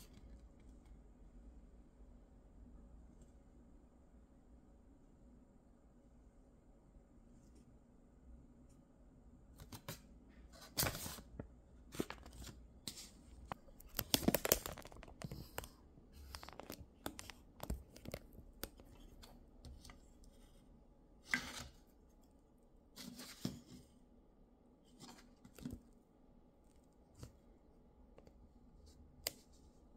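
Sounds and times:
paper rustling and crinkling: 9.6 - 20.5.

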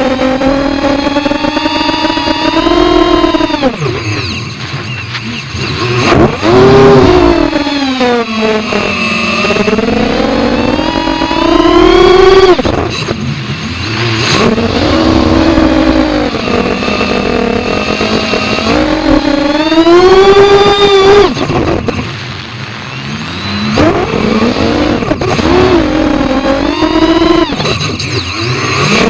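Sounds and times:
quadcopter motors whining: 0.0 - 29.0.

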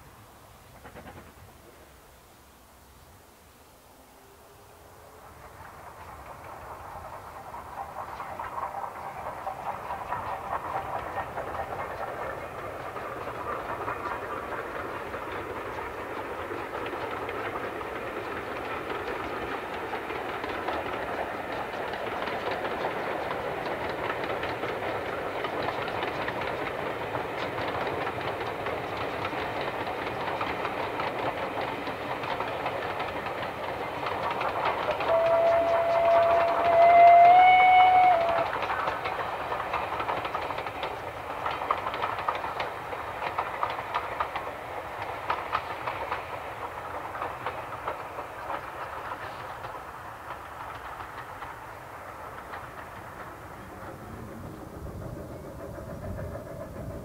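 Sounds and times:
train wheels rumbling on rails: 0.0 - 57.0
steam whistle: 35.0 - 38.6.

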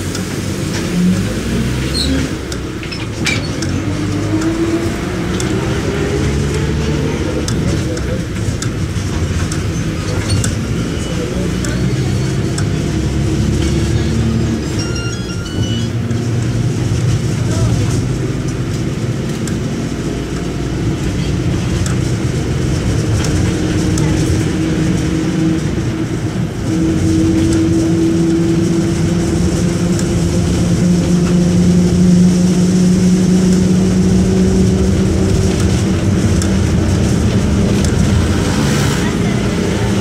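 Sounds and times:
bus diesel engine running: 0.0 - 40.0.

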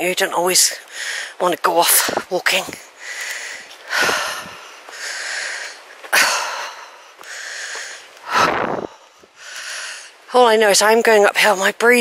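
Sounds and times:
laboured breathing: 2.9 - 10.2.

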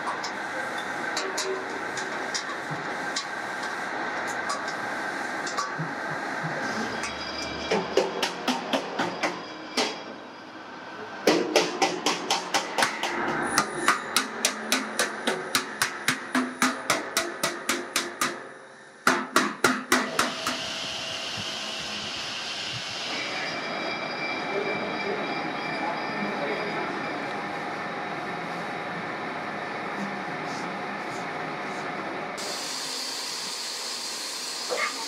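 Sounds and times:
steady background noise: 0.0 - 35.0
hammer striking sheet steel: 11.2 - 20.6.

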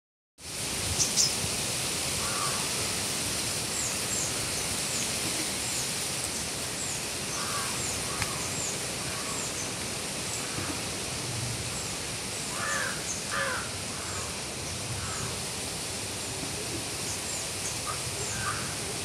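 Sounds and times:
wind through trees: 0.4 - 19.0
crow cawing: 2.2 - 2.7, 7.3 - 9.4, 12.5 - 14.4, 15.0 - 15.4, 17.8 - 18.8.

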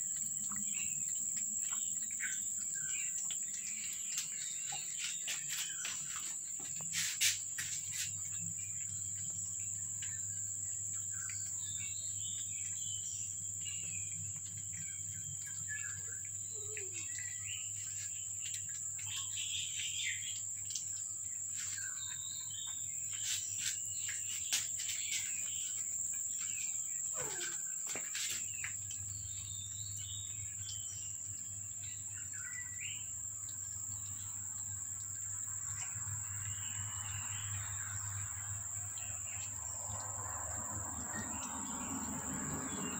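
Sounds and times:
insects droning: 0.0 - 42.9
bird chirps: 0.4 - 20.8, 21.6 - 34.4.

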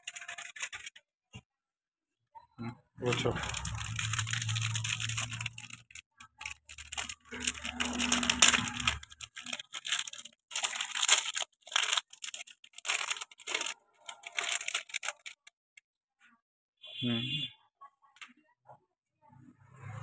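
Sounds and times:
plastic wrapper crinkling: 0.0 - 1.0, 3.0 - 15.5.

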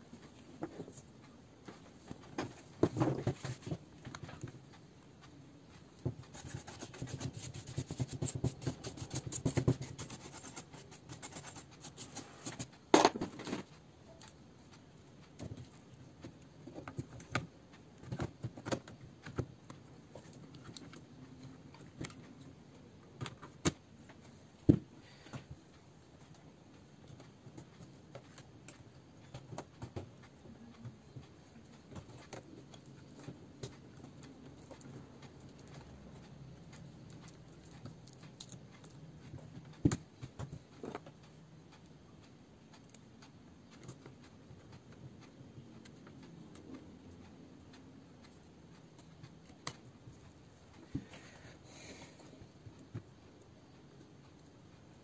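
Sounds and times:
clicks and taps: 1.6 - 25.6, 26.2 - 42.0.

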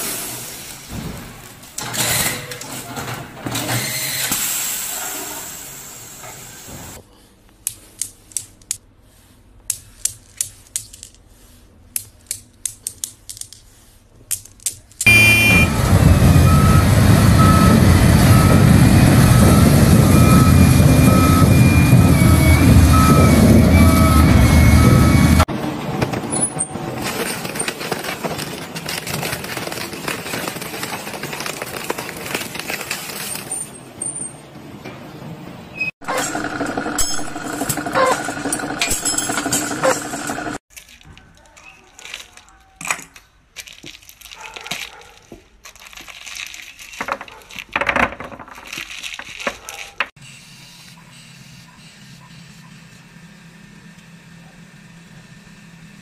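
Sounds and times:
back-up alarm beeping: 15.1 - 25.4
diesel engine running loud: 15.1 - 25.8
industrial shredder grinding: 36.0 - 40.6.

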